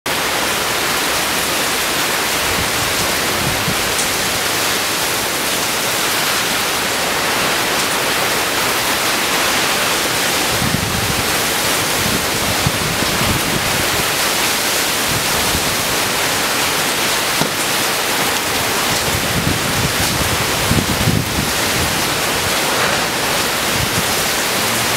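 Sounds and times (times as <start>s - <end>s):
heavy rain downpour: 0.1s - 24.9s
gusty wind rumbles: 10.4s - 24.9s.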